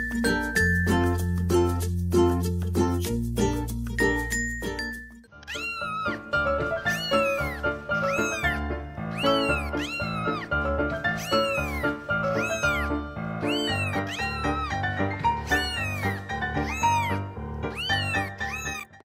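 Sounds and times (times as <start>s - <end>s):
background music with bass: 0.0s - 4.4s
cat meows: 5.4s - 19.0s.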